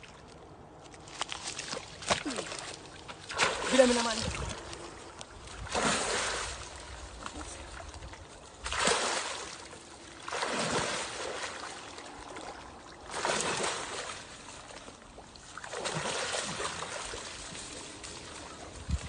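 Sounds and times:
crocodile thrashing in water: 8.6 - 14.4, 15.6 - 18.5.

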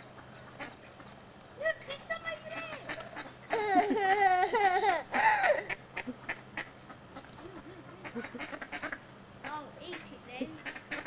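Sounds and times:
boy laughing: 3.5 - 6.2.

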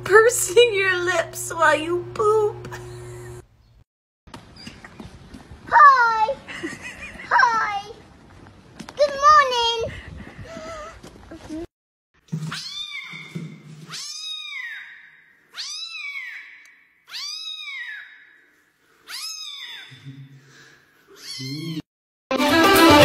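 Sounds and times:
kitten meowing: 12.5 - 13.3, 13.9 - 16.5, 17.1 - 18.2, 19.1 - 20.0, 21.2 - 21.8.

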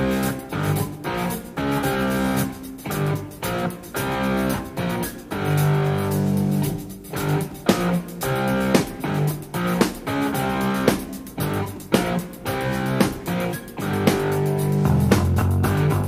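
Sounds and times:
bass line: 0.0 - 16.0
plucked guitar song: 0.0 - 16.0.

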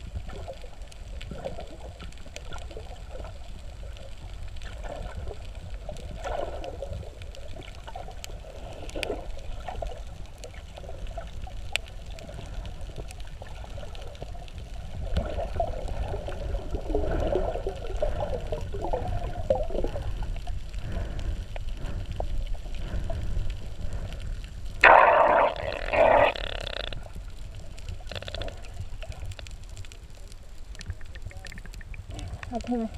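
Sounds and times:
gurgling water: 0.0 - 32.9
underwater low rumble: 0.0 - 32.9
faint clicks: 0.2 - 16.7, 18.6 - 32.9.

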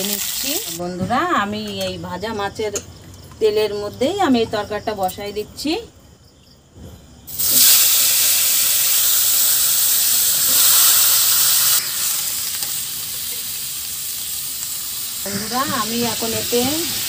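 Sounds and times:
food frying in hot oil: 0.0 - 0.8, 7.3 - 17.0.

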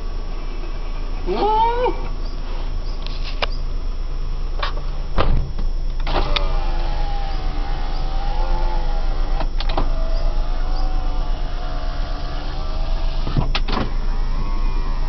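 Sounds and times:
engine humming low: 0.0 - 15.0
power window motor whining: 6.0 - 15.0.

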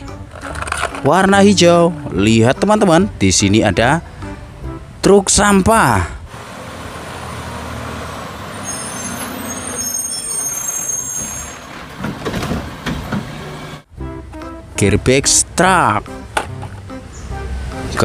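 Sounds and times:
truck engine running with hiss: 6.3 - 13.9
high brake squeals: 8.5 - 11.8.

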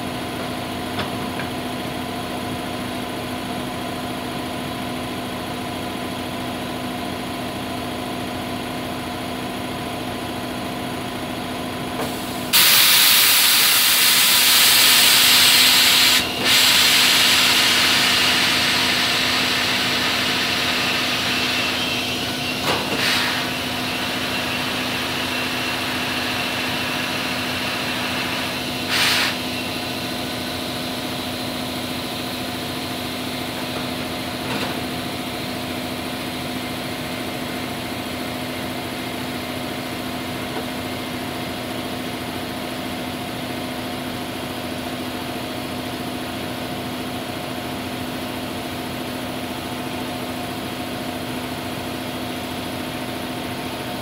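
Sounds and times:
compressed air hissing: 12.1 - 30.1
steady engine-like hum: 14.4 - 54.0.

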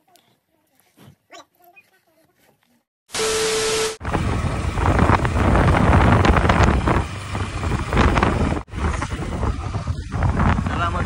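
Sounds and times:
motorcycle engine: 3.2 - 11.0
road rumble: 4.0 - 11.0
wind buffeting microphone: 4.0 - 11.0.

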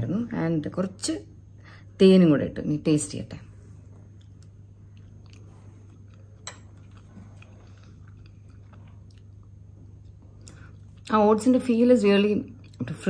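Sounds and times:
steady low hum: 0.0 - 13.0
soft chewing with mouth clicks: 3.6 - 11.2, 12.5 - 13.0.

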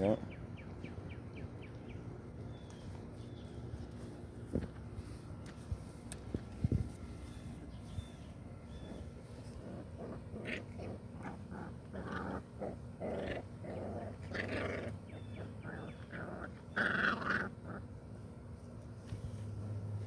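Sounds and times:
puppies growling and crying: 7.2 - 18.2.

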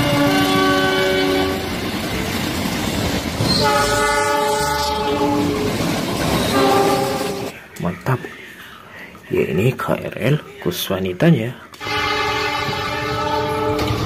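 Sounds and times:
locomotive horn blasts: 0.0 - 1.7, 3.5 - 5.7, 6.5 - 7.5, 11.8 - 14.0
rumble of passing train: 0.0 - 8.0, 11.8 - 14.0.

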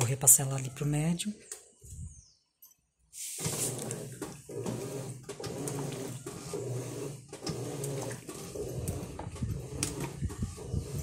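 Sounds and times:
washing machine motor hum: 3.4 - 11.0.

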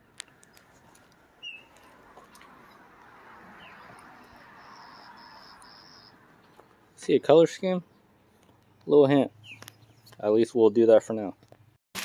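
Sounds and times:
short high bird chirp: 3.6 - 6.1.

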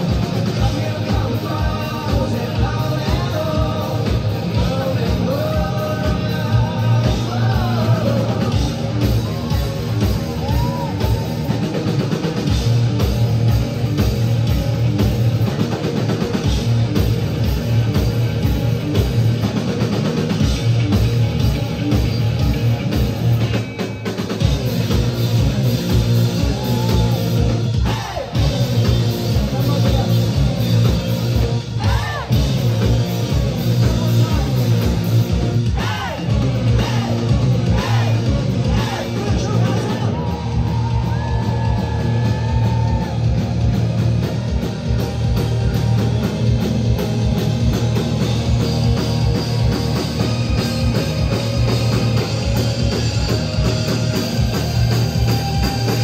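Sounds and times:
drum kit beat: 0.0 - 56.0
electric guitars: 0.0 - 56.0
person singing: 0.1 - 9.8.

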